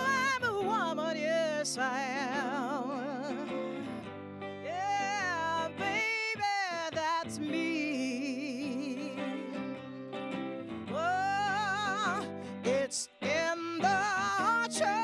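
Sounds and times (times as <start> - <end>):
woman singing with vibrato: 0.0 - 10.0, 10.9 - 15.0
electric guitar: 0.0 - 15.0.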